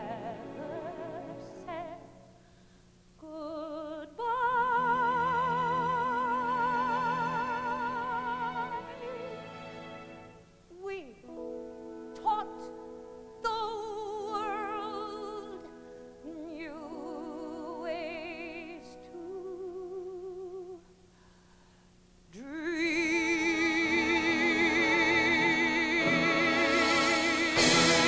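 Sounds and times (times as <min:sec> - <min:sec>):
woman singing with vibrato: 0:00.0 - 0:02.3, 0:03.2 - 0:09.6, 0:10.7 - 0:11.4, 0:12.1 - 0:20.9, 0:22.3 - 0:28.0
orchestra playing: 0:23.7 - 0:28.0.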